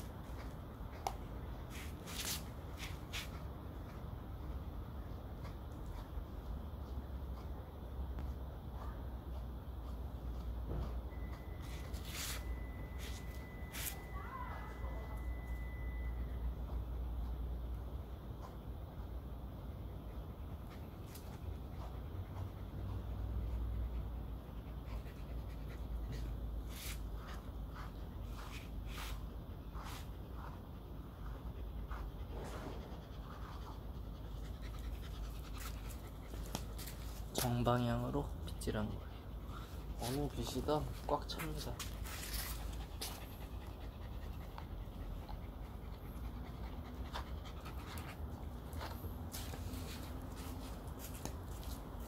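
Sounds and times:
comb rasping through dog fur: 0:00.4 - 0:08.3, 0:09.1 - 0:14.8, 0:20.5 - 0:43.8
dog panting: 0:02.6 - 0:13.5, 0:16.6 - 0:52.0.

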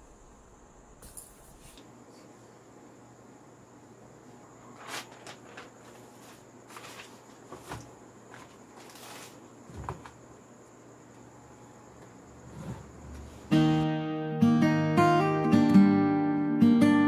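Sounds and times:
faint steady hum: 0:00.0 - 0:17.0
notebook pages rustling: 0:04.6 - 0:10.2.

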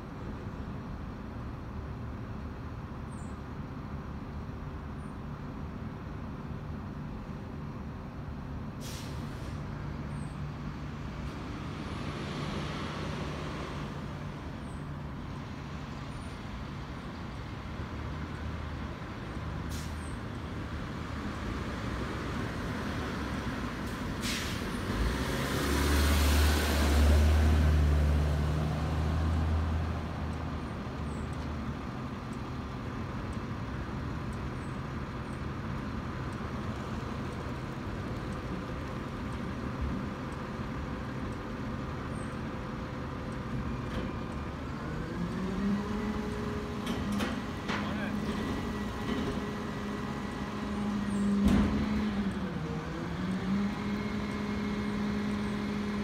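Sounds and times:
car driving past: 0:24.5 - 0:30.1.

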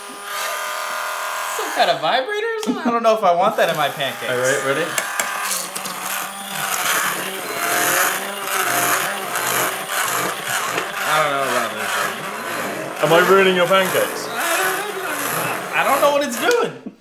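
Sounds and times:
immersion blender motor whine: 0:00.0 - 0:02.2, 0:03.3 - 0:16.7
batter churning: 0:03.6 - 0:16.6.

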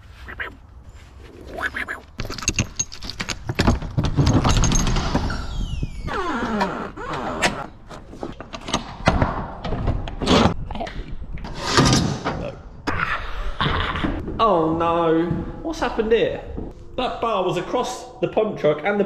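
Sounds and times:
trailer door squealing: 0:05.0 - 0:07.8.

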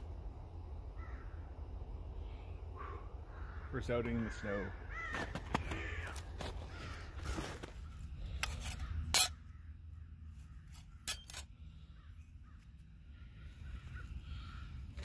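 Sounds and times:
crows cawing: 0:01.0 - 0:01.5, 0:02.3 - 0:10.8, 0:11.8 - 0:15.0.

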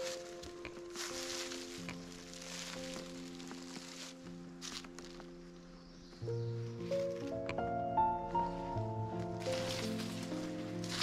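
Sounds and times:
background music held notes: 0:00.0 - 0:11.0.

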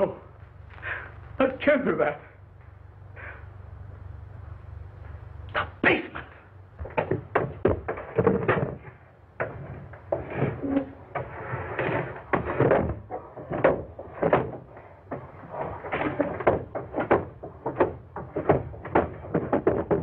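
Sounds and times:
faint steady hiss: 0:00.0 - 0:07.5
footsteps on wooden stairs: 0:11.9 - 0:20.0.

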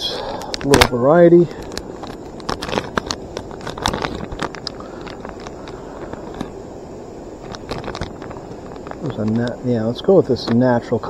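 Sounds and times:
plastic bag crinkling: 0:00.4 - 0:06.5, 0:07.4 - 0:09.5.

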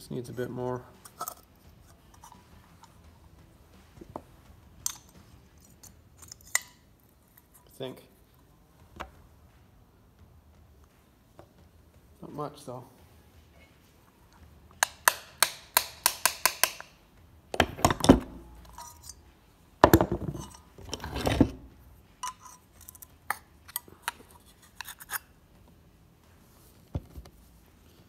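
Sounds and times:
hammer tapping metal: 0:14.8 - 0:17.0.

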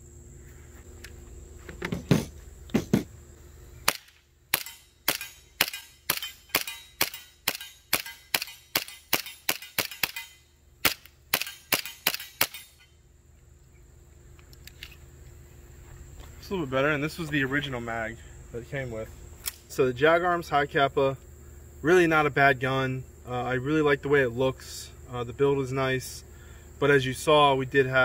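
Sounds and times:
airsoft pistol shots: 0:03.8 - 0:12.7.

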